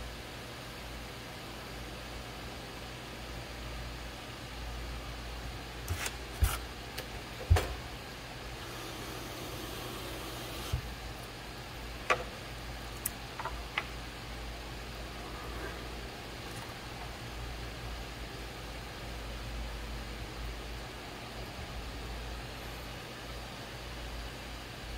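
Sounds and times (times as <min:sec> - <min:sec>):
potter's wheel humming: 0:05.8 - 0:18.3.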